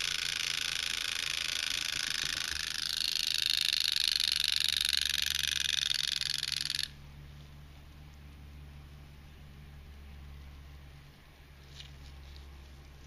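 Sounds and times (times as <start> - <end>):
wind-up clock alarm ringing: 0.0 - 6.9.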